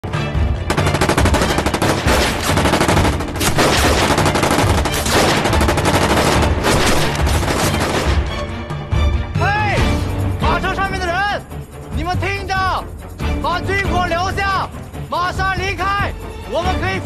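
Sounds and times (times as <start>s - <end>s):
gunfire volley: 0.7s - 8.3s.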